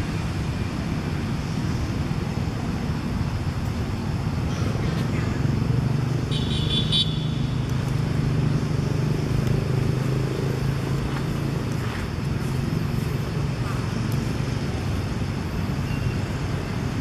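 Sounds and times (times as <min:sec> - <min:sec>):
engine humming: 0:00.0 - 0:17.0.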